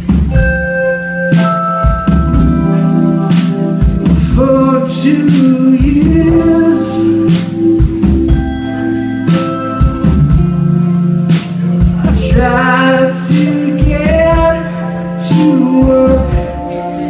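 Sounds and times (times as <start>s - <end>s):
live band playing: 0.0s - 17.0s
man singing: 4.0s - 7.8s, 11.8s - 17.0s.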